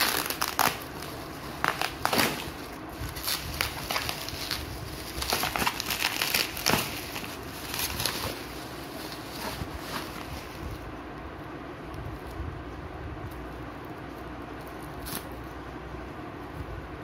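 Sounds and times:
bubble wrap crinkling: 0.0 - 10.9.

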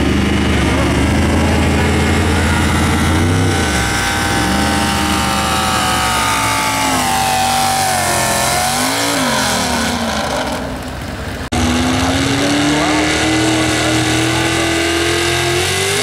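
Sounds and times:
truck engine at high revs: 0.0 - 16.0.

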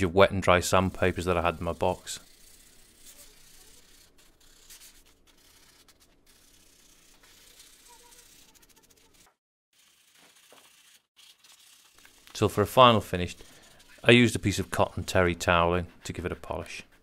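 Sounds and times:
sandpaper rubbing: 0.7 - 17.0.

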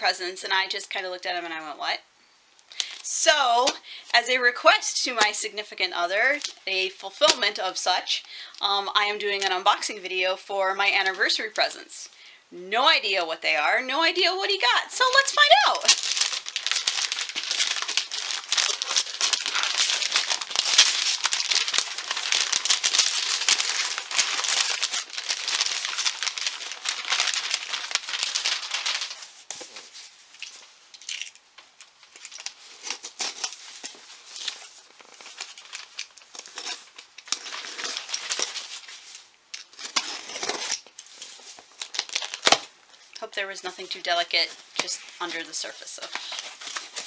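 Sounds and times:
gift bag crinkling: 14.6 - 31.4, 32.1 - 42.7
cardboard box rustling: 16.0 - 30.1.

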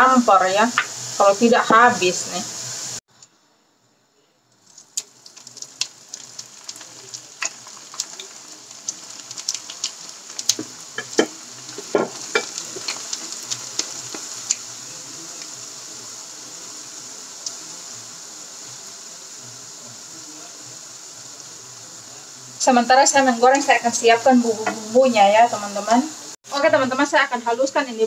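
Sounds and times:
food sizzling in oil: 0.0 - 3.0, 4.6 - 28.0
oil crackles and pops: 4.5 - 22.0.

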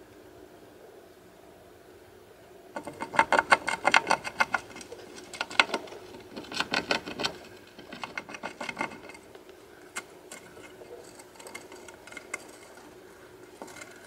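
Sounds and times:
hamster rattling cage bars: 2.8 - 9.3, 10.3 - 12.8.

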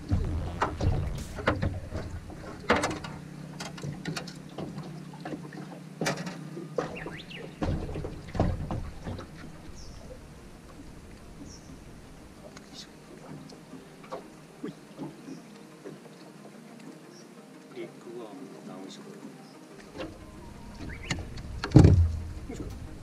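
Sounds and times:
low steady rumble: 0.0 - 3.4
knocks and clicks on boat: 0.0 - 10.1, 15.0 - 16.1, 19.8 - 22.9
water splashing: 0.0 - 23.0.

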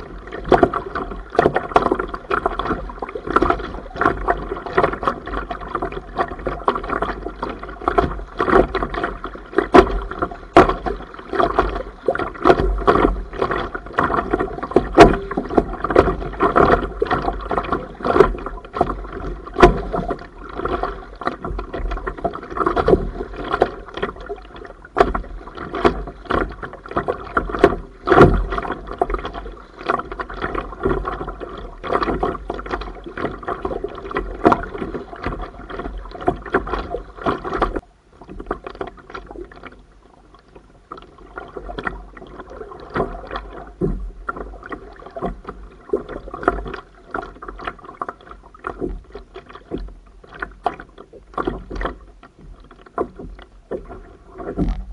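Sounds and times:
waves splashing against kayak: 0.0 - 54.9
wind rumble on microphone: 52.4 - 54.9.

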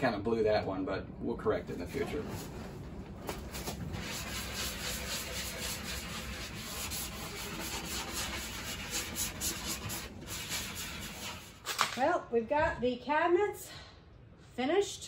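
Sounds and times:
sanding sponge rubbing wood: 3.4 - 11.6.

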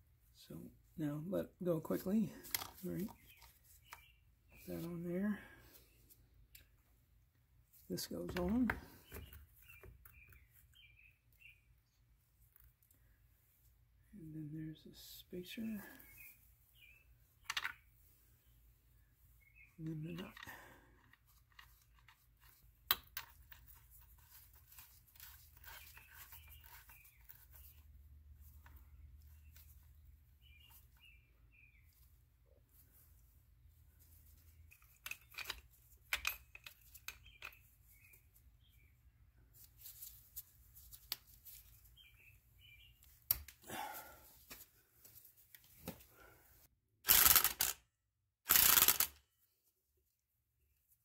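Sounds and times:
light clicks of parts handled: 34.5 - 38.2
impact wrench bursts: 47.1 - 47.8, 48.5 - 49.1.

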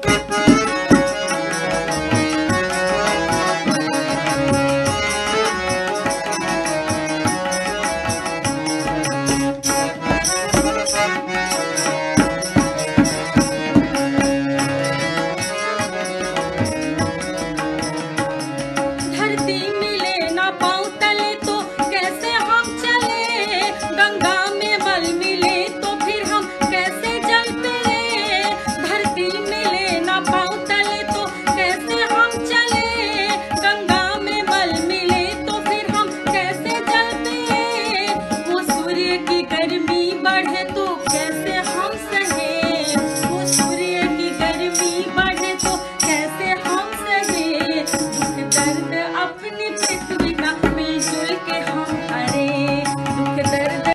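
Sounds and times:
hand-drum percussion: 0.0 - 49.0, 49.6 - 53.9
instrumental accompaniment: 0.0 - 53.9
woman singing folk song: 19.1 - 53.9.

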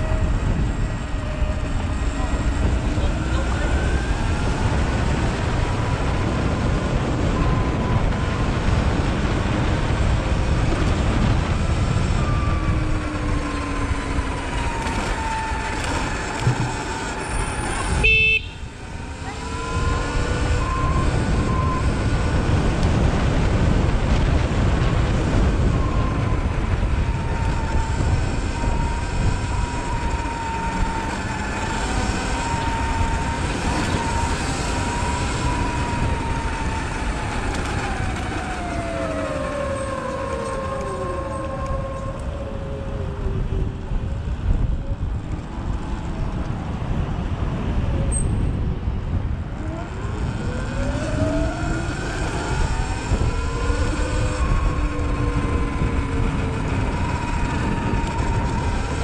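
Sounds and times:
wind and road noise: 0.0 - 59.0
electric motor whine: 10.7 - 44.6
vehicle horn toot: 17.8 - 18.7.

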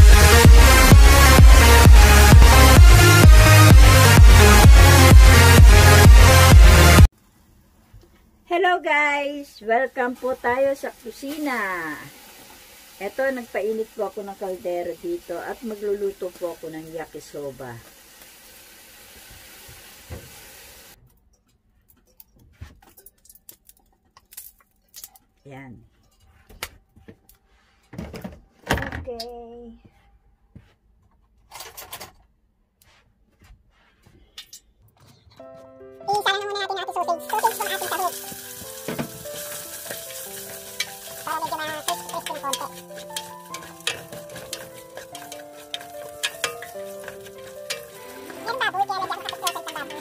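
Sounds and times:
hot pot hissing: 10.0 - 21.0, 37.2 - 50.0
oil crackling in hot pot: 10.1 - 21.0, 37.2 - 50.0.

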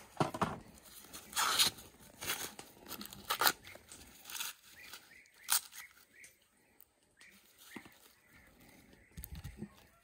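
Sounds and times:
corn husks ripping: 0.8 - 6.4.

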